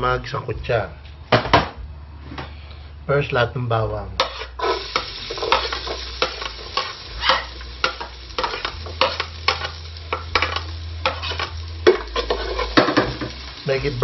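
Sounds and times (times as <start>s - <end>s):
garlic sizzling in hot oil: 4.2s - 14.0s.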